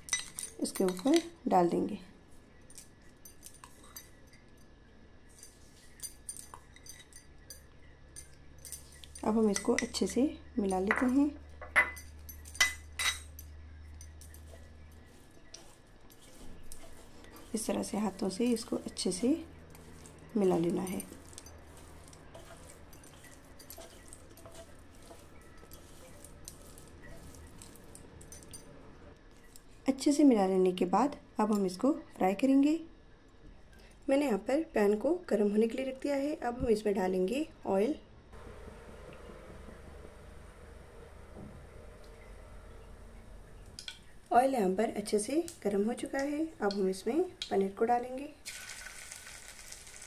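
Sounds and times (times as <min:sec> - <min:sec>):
metal spoon clinking on glass bowl: 0:00.0 - 0:01.2, 0:02.7 - 0:04.7, 0:05.3 - 0:14.7, 0:18.0 - 0:28.8
hand mixing food on a plate: 0:00.0 - 0:01.4, 0:02.3 - 0:29.8.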